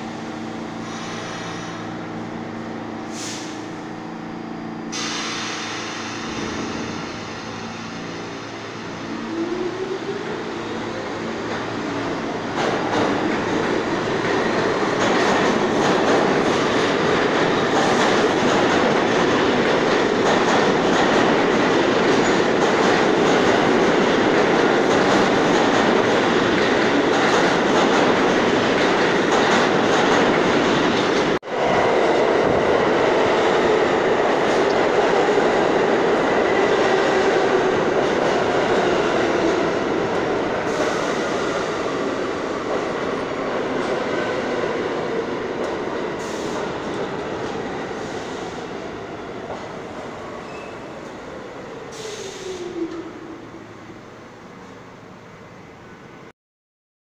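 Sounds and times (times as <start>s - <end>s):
subway train rumble and clatter: 0.0s - 56.3s.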